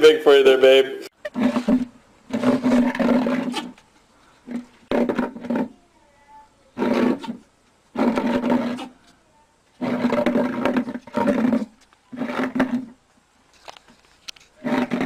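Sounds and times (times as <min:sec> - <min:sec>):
plant pot scraping on concrete: 0:01.2 - 0:03.8, 0:06.8 - 0:09.0, 0:09.8 - 0:13.0, 0:14.3 - 0:15.0.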